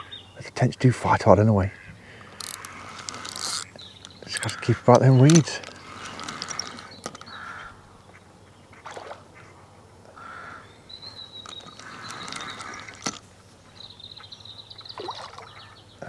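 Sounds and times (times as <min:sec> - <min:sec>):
bird calls: 0:00.0 - 0:16.0
fishing reel winding with clicks: 0:02.2 - 0:07.4, 0:11.4 - 0:13.2.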